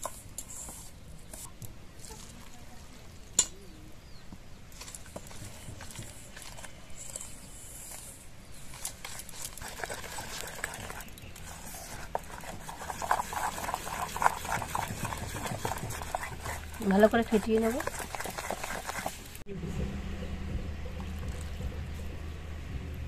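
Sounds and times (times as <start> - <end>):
metal spoon beating batter in bowl: 8.6 - 19.4.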